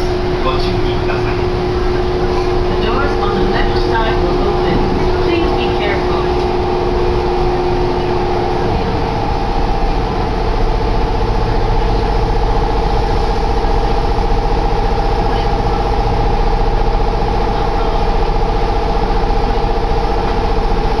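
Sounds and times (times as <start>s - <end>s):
electric train humming: 0.0s - 21.0s.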